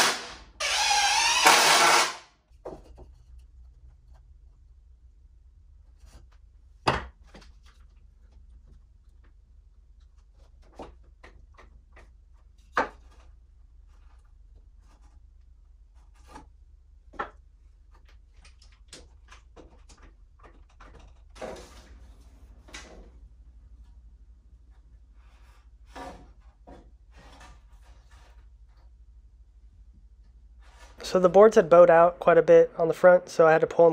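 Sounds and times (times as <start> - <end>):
wood scraping on wood: 10.2 - 16.6, 24.8 - 29.0, 30.6 - 31.4.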